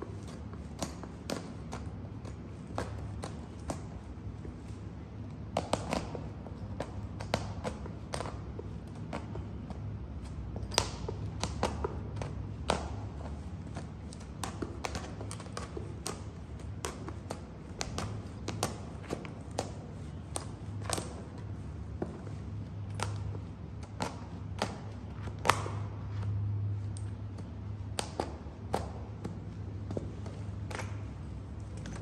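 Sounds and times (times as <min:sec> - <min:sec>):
heels tapping on concrete: 0:00.0 - 0:32.0
steady low hum: 0:00.0 - 0:32.0.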